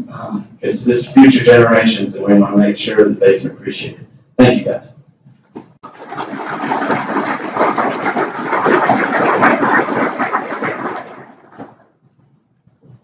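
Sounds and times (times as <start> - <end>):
audience applauding: 5.8 - 11.8.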